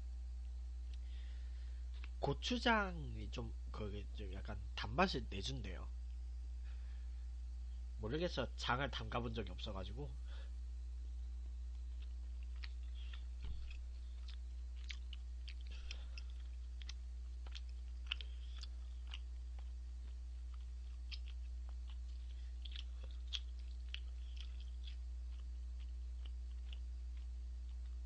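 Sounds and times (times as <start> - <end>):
low hum: 0.0 - 28.0
chewing mouth clicks: 11.9 - 28.0.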